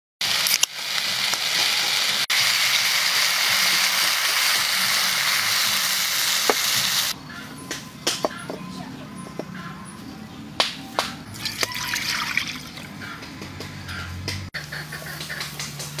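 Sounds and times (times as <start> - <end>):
chicken frying in a wok: 0.2 - 7.2
beer pouring: 11.3 - 12.9.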